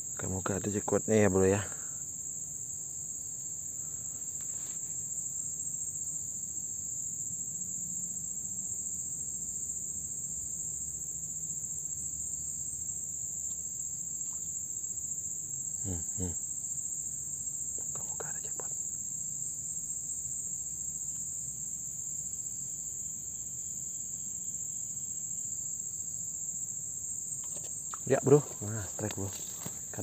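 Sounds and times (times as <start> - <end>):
insects chirring: 0.0 - 30.0
man murmuring: 15.8 - 16.4, 28.0 - 30.0.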